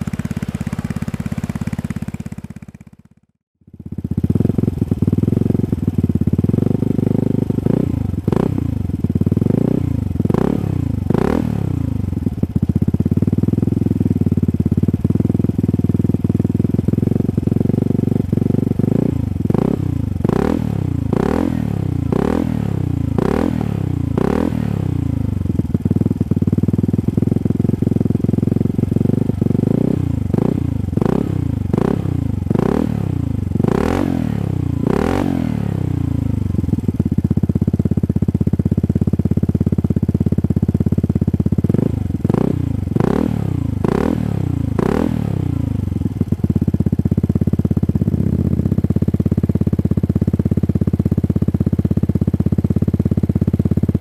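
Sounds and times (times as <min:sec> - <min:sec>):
scooter engine idling and revving: 0:00.0 - 0:54.0.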